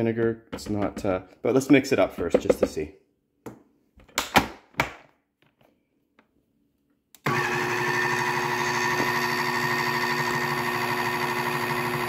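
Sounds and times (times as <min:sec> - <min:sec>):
electric blender running: 0:07.2 - 0:12.0.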